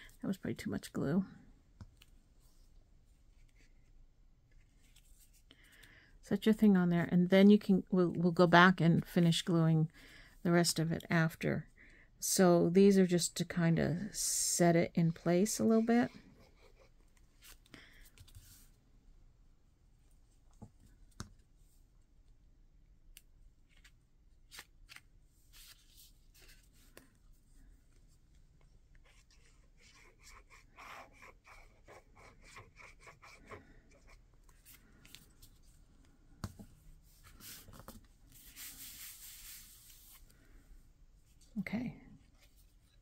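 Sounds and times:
scratchy rubbing on paper: 29.0 - 34.7, 38.3 - 40.2.

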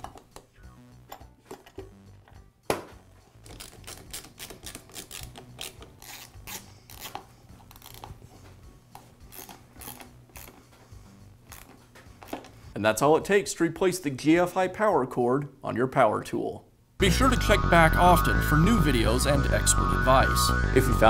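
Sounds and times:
fastener clicking and scraping: 3.4 - 8.2.

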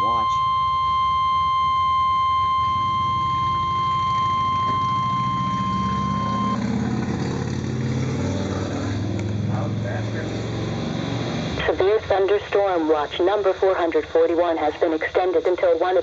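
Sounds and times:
low rumbling hum: 0.0 - 6.6
shrill alarm beep: 0.0 - 6.6.

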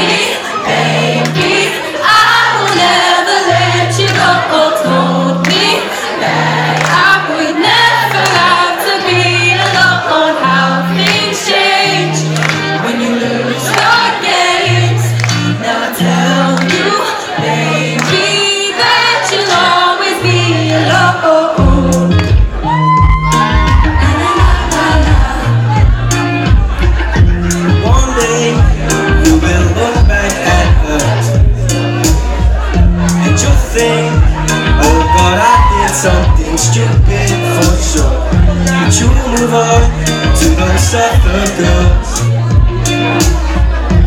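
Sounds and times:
live pop song over pa: 0.0 - 44.0
woman singing: 6.8 - 25.4
bass line: 20.3 - 44.0.

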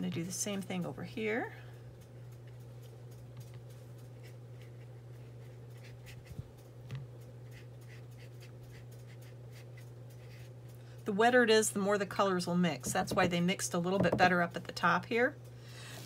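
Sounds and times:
steady low hum: 0.0 - 16.0
brush scratching on paper: 4.0 - 6.7, 7.4 - 10.6.

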